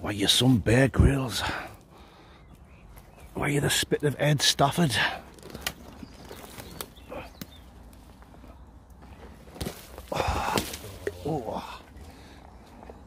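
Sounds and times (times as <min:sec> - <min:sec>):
footsteps on loose soil: 0:02.5 - 0:13.0
twigs cracking: 0:04.0 - 0:13.0.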